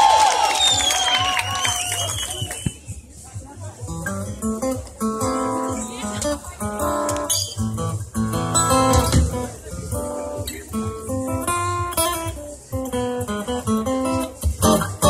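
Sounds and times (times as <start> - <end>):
cuban son music with acoustic guitar: 3.9 - 15.0.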